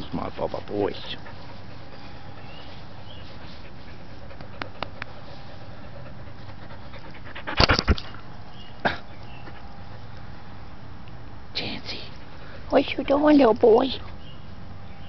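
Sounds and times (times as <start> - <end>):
dog panting: 0.3 - 8.3, 9.2 - 10.6, 11.8 - 14.2.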